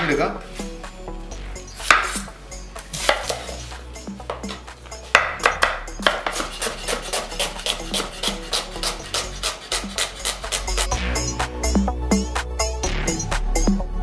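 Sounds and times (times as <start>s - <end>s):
knife chopping on wooden board: 1.8s - 2.3s, 3.0s - 3.6s, 4.2s - 10.7s.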